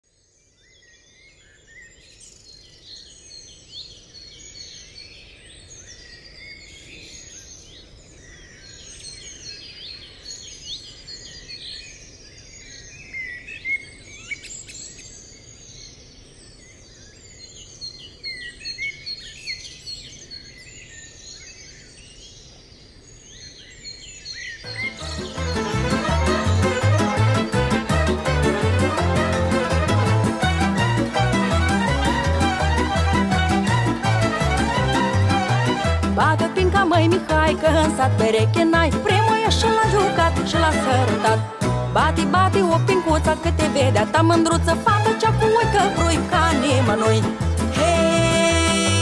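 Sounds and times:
songbirds chirping and trilling: 0:00.1 - 0:27.9.

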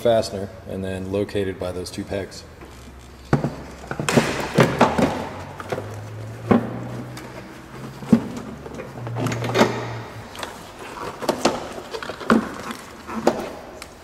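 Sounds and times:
plastic parts knocking and clicking: 0:03.2 - 0:13.5.

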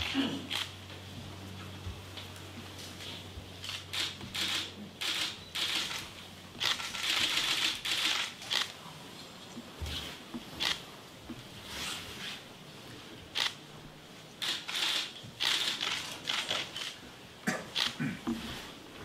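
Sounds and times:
paper and cloth rustling: 0:05.6 - 0:13.1.

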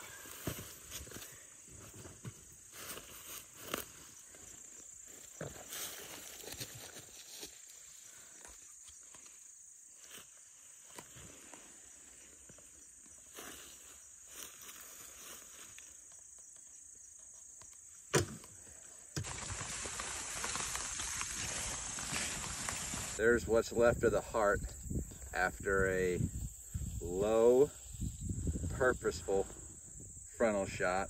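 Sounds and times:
grass rustling: 0:00.0 - 0:18.0, 0:18.6 - 0:29.8
crickets trilling: 0:00.0 - 0:31.0
footsteps: 0:19.2 - 0:23.2.

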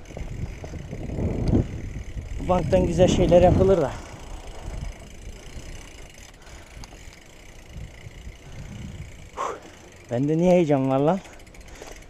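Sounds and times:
bike rolling over rubber tiles: 0:00.0 - 0:12.0.

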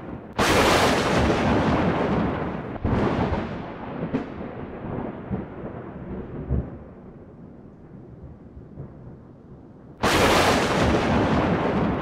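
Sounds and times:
sharp thunder cracks: 0:00.0 - 0:06.9, 0:10.0 - 0:12.0
thunder rumble: 0:00.0 - 0:12.0.

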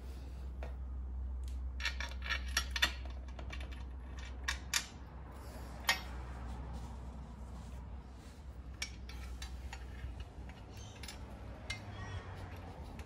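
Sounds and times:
steady low hum: 0:00.0 - 0:13.0
metal parts clicking and clinking: 0:01.4 - 0:06.2, 0:08.7 - 0:13.0.

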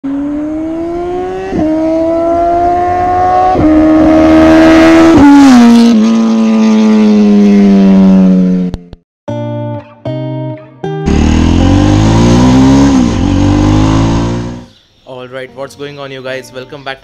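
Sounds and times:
motorcycle engine accelerating: 0:00.0 - 0:09.0, 0:11.0 - 0:14.8.

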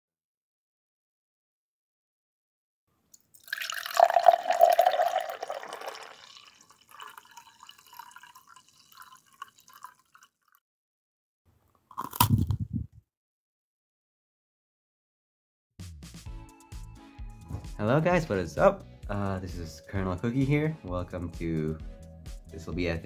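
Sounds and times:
milk pouring into a glass: 0:03.2 - 0:10.6.

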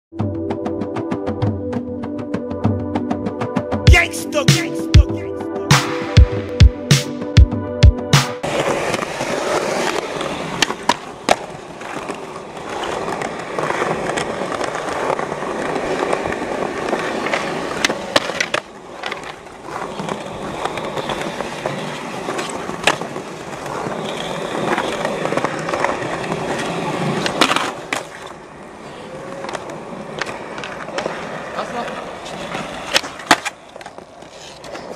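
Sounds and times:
skateboard wheels rolling on concrete: 0:00.1 - 0:04.7, 0:05.5 - 0:34.9
skateboard clacks: 0:08.2 - 0:34.9.

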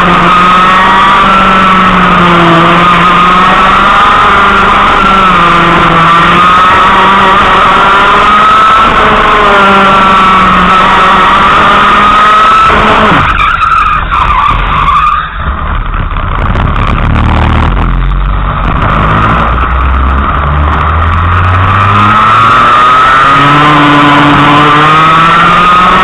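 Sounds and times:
racing kart engine revving: 0:00.0 - 0:26.0.

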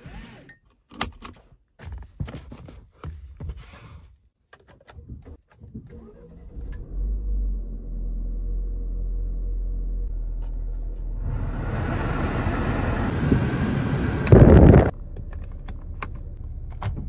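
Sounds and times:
clicks and rustles of controls: 0:04.4 - 0:06.8
car engine starting and idling: 0:05.5 - 0:17.0.

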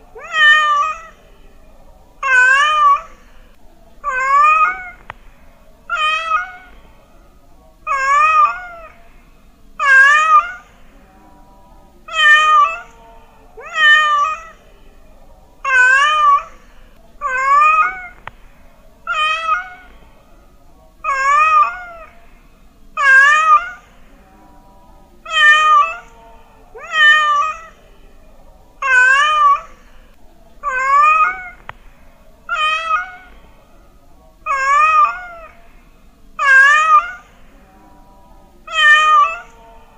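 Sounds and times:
cat meowing: 0:00.2 - 0:01.2, 0:02.2 - 0:03.2, 0:04.0 - 0:05.0, 0:05.9 - 0:06.8, 0:07.9 - 0:09.0, 0:09.8 - 0:10.8, 0:12.1 - 0:12.9, 0:13.6 - 0:14.6, 0:15.6 - 0:16.6, 0:17.2 - 0:18.3, 0:19.1 - 0:20.0, 0:21.0 - 0:22.2, 0:23.0 - 0:23.9, 0:25.3 - 0:26.1, 0:26.8 - 0:27.8, 0:28.8 - 0:29.7, 0:30.6 - 0:31.7, 0:32.5 - 0:33.4, 0:34.4 - 0:35.6, 0:36.4 - 0:37.4, 0:38.7 - 0:39.6.

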